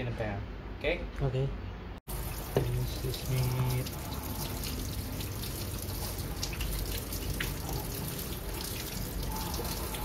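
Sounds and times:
small water splashes: 2.1s - 10.0s
tap water running into sink: 2.1s - 10.0s.

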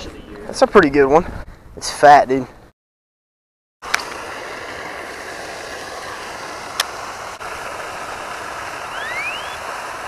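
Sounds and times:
outdoor background noise: 0.0s - 2.7s, 3.8s - 10.0s.

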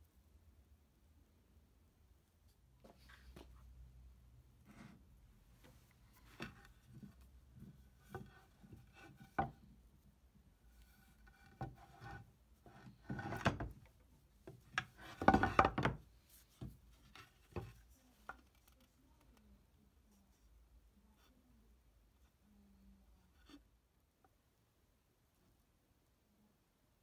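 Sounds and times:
wood-on-wood knocks: 9.2s - 9.6s, 14.5s - 16.0s
scratchy rubbing: 10.8s - 13.6s.

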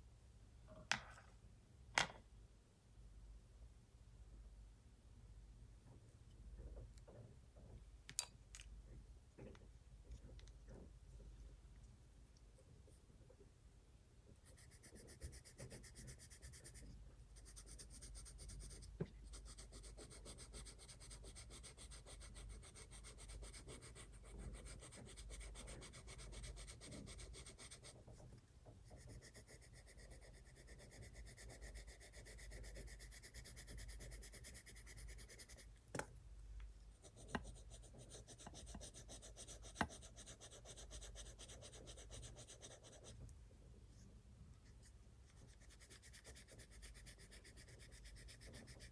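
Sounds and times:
pencil rubbing on paper: 14.4s - 28.2s, 28.8s - 35.7s, 37.0s - 43.2s, 44.6s - 48.9s.

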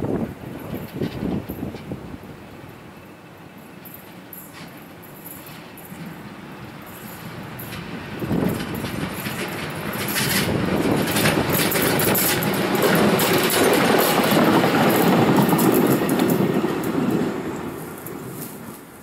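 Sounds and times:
train wheels on rails: 0.0s - 19.0s
diesel locomotive engine running: 3.0s - 19.0s.

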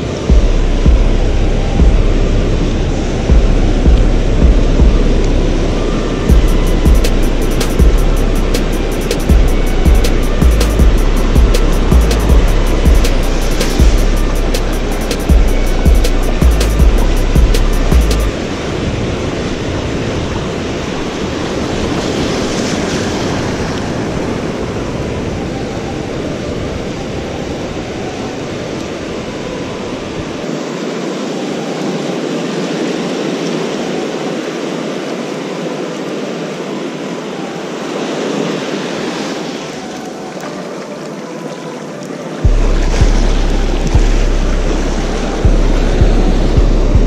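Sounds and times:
wind buffeting microphone: 0.0s - 32.0s
surf washing over sand: 18.3s - 46.6s.

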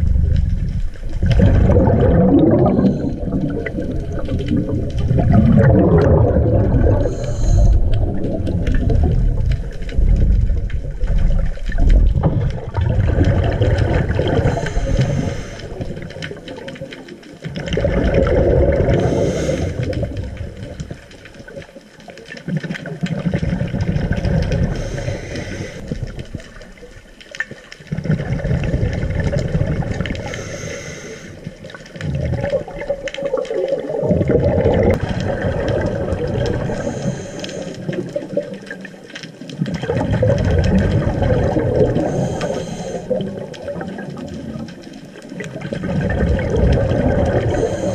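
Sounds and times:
gurgling exhaled bubbles: 0.0s - 47.9s
scuba regulator breathing underwater: 1.4s - 9.2s, 13.0s - 16.4s, 17.8s - 20.7s, 24.0s - 26.0s, 28.0s - 32.7s, 34.3s - 38.4s, 40.2s - 43.6s, 46.0s - 47.9s.

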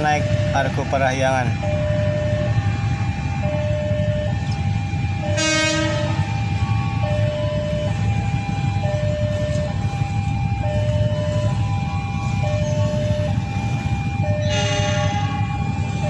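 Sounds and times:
steady low rumble: 0.0s - 16.0s
train horn: 5.2s - 6.3s, 14.4s - 15.5s.

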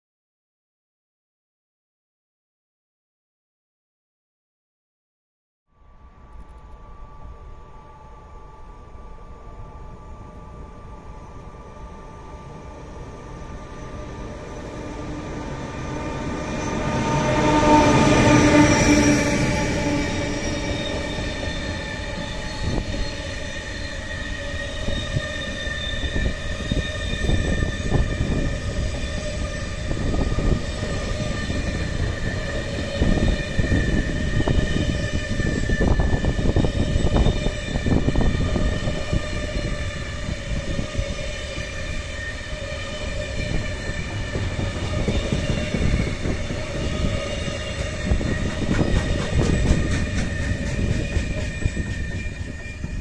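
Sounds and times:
freight train wheels rumbling: 6.2s - 53.0s
high wheel squeal: 11.9s - 53.0s.

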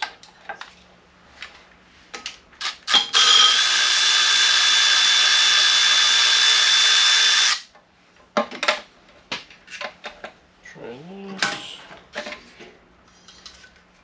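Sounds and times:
power tool loosening a bolt: 2.6s - 7.7s.

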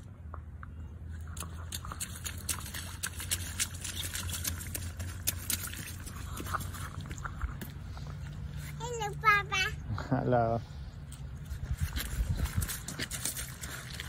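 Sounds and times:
boots splashing in a puddle: 1.1s - 8.8s, 11.1s - 14.0s
footsteps crunching on gravel: 11.4s - 14.0s.

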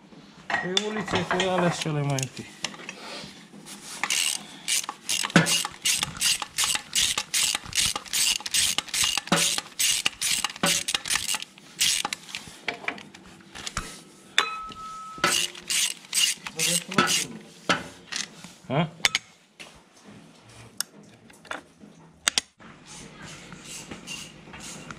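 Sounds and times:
ratchet wrench clicking: 4.0s - 12.4s, 15.2s - 17.3s.

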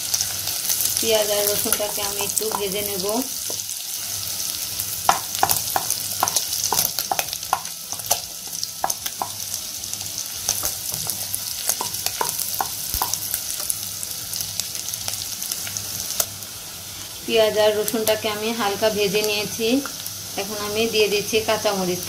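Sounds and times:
onion sizzling in hot oil: 0.0s - 22.0s.

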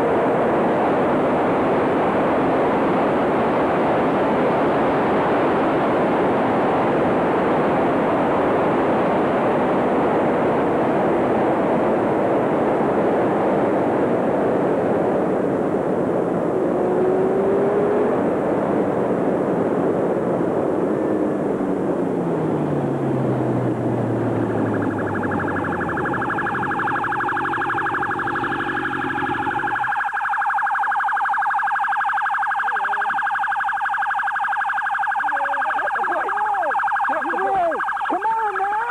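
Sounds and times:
police siren: 0.0s - 38.9s
motorcycle engine: 20.9s - 29.9s.

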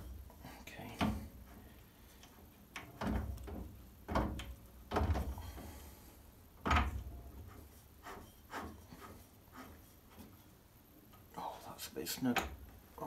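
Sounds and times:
metal clunks and scrapes: 1.0s - 6.0s, 6.6s - 10.5s.

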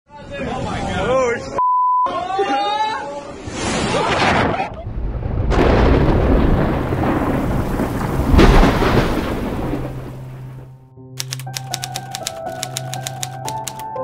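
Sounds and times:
thunder clap and rumble: 4.8s - 10.7s
rain: 4.9s - 10.6s.

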